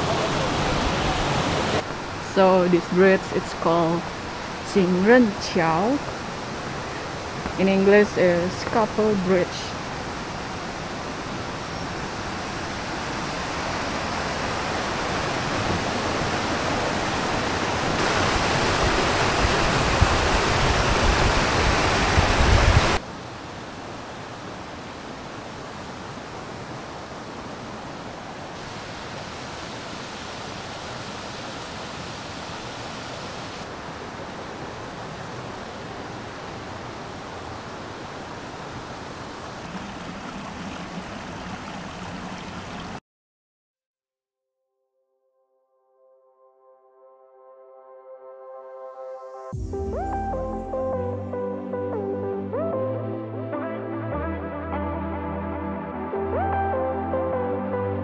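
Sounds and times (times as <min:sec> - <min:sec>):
mountain stream rushing: 0:00.0 - 0:43.0.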